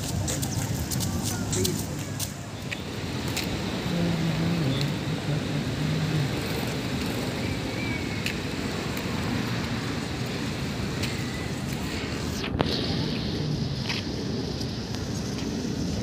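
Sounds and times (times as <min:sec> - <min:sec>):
distant traffic rumble: 0:00.0 - 0:16.0
wind on microphone: 0:00.0 - 0:16.0.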